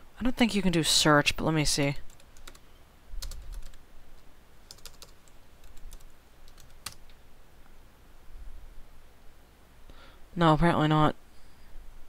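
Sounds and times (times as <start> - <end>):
computer keyboard typing: 2.1 - 2.6, 3.2 - 3.8, 4.7 - 7.1.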